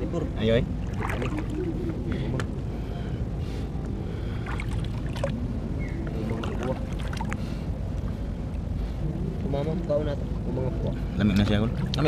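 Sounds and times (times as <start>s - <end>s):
low water rumble: 0.0s - 12.0s
water sloshing around legs: 0.6s - 2.6s, 4.3s - 8.8s, 11.4s - 12.0s.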